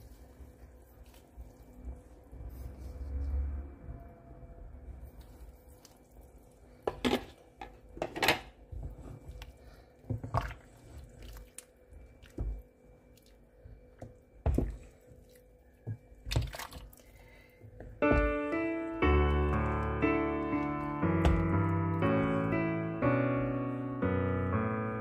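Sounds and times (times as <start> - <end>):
piano music: 18.0 - 25.0.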